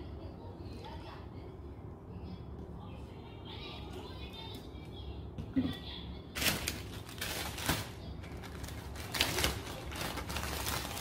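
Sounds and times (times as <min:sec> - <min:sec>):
plastic bag crinkling: 0:06.4 - 0:11.0.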